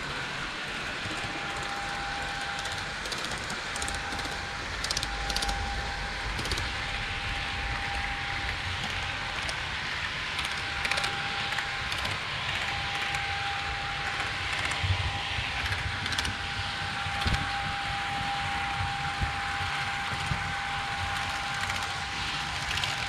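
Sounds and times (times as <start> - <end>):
faint steady whine: 0.0 - 23.0
model train rumbling on track: 0.0 - 23.0
sharp clicks: 2.6 - 5.7.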